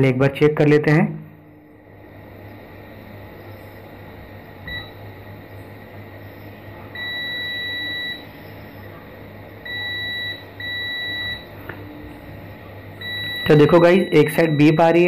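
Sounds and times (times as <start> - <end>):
multimeter continuity beeps: 4.6 - 5.1, 6.9 - 8.4, 9.6 - 11.6, 13.0 - 15.0.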